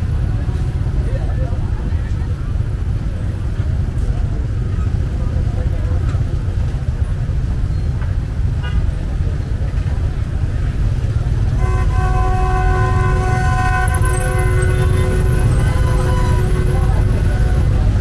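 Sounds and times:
low rumble of road traffic: 0:00.0 - 0:18.0
vehicle horn long note: 0:11.5 - 0:18.0.

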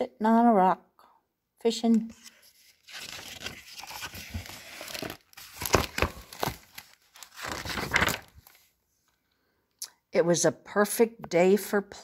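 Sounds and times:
paper pages rustling: 0:02.1 - 0:09.2.

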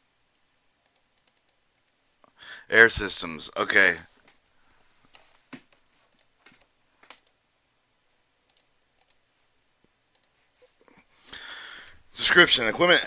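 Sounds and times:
computer mouse clicks: 0:00.8 - 0:01.6, 0:05.1 - 0:07.4, 0:08.5 - 0:09.2, 0:09.8 - 0:10.4
soft breath: 0:02.3 - 0:02.7, 0:04.5 - 0:05.5, 0:10.4 - 0:12.1
person speaking: 0:02.6 - 0:04.2, 0:11.6 - 0:13.0.

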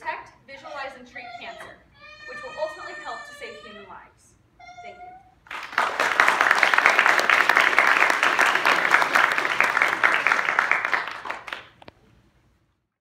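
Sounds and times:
audience applauding: 0:05.5 - 0:11.8.

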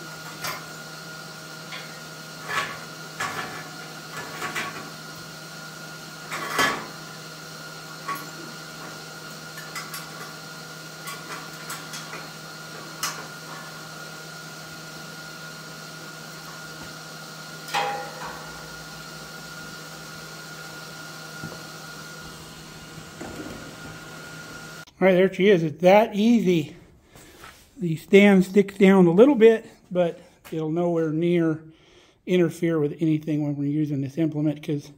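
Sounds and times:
metal taps and clanks: 0:17.7 - 0:18.6.

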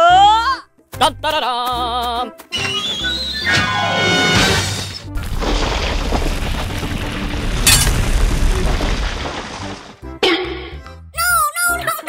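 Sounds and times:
music: 0:00.0 - 0:12.0
cartoon crash: 0:02.7 - 0:06.3, 0:07.5 - 0:09.0
deep rumbling boom: 0:05.1 - 0:09.9.

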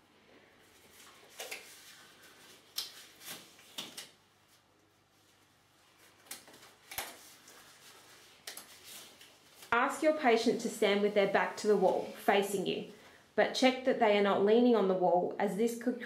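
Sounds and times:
disposable gloves rustling and snapping: 0:00.6 - 0:12.3.

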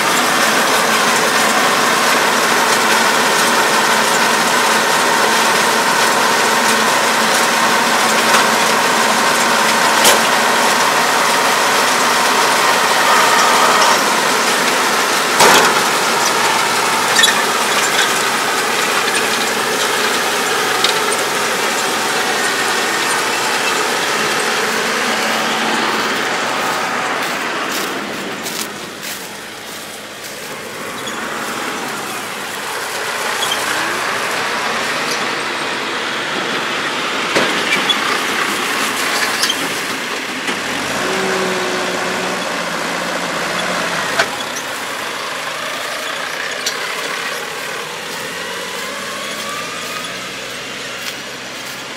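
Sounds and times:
baler gears and chains clattering: 0:00.0 - 0:27.1, 0:27.7 - 0:35.4
tractor engine running: 0:00.0 - 0:51.9.

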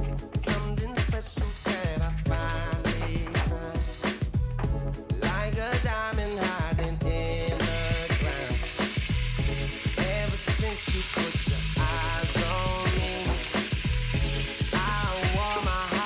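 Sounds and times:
background music: 0:00.0 - 0:16.0
beef sizzling in hot oil: 0:07.4 - 0:16.0.

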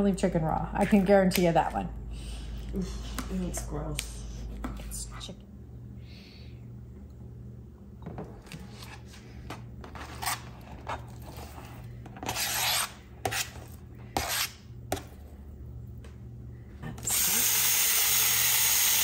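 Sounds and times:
knife scraping cutting board: 0:08.4 - 0:14.6.

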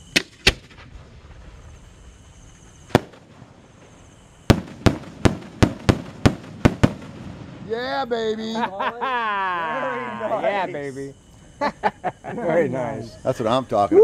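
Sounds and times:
loud firework reports: 0:02.9 - 0:08.5.

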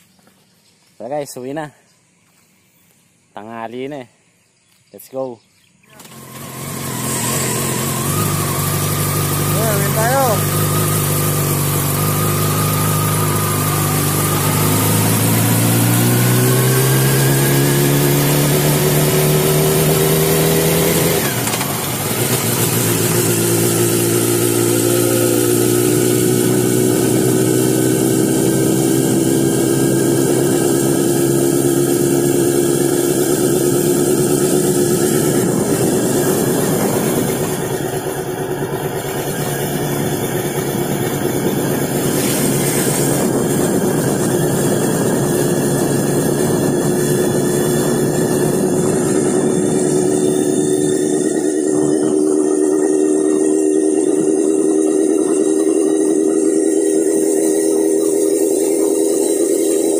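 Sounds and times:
motorcycle engine running: 0:05.8 - 0:59.9
wind rushing over microphone: 0:34.0 - 0:38.1, 0:39.9 - 0:52.6.

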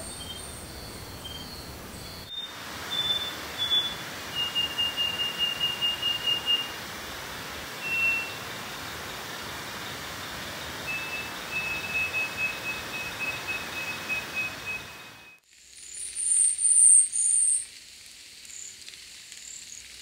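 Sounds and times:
bird whistled song: 0:00.0 - 0:06.8, 0:07.8 - 0:08.8, 0:10.8 - 0:17.6
steady forest hiss: 0:00.0 - 0:20.0.

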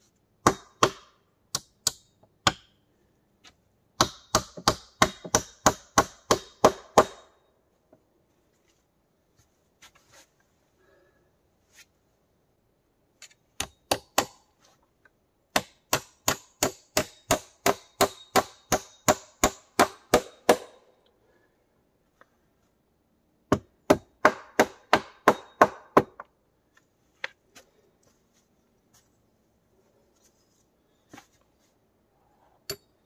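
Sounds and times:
hammer striking wood: 0:00.4 - 0:02.7, 0:04.0 - 0:07.4, 0:13.6 - 0:14.5, 0:15.5 - 0:20.9, 0:23.5 - 0:26.3.

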